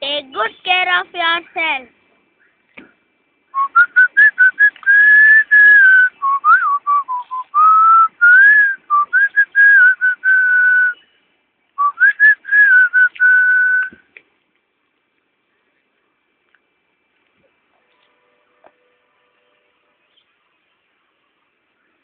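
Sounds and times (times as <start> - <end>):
person whistling a tune: 3.6 - 11.0, 11.8 - 14.0.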